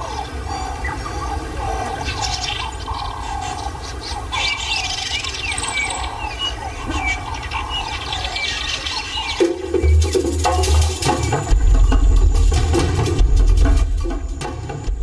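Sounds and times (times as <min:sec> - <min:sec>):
birds chirping and whistling: 0:00.0 - 0:15.0
low steady rumble: 0:09.7 - 0:15.0.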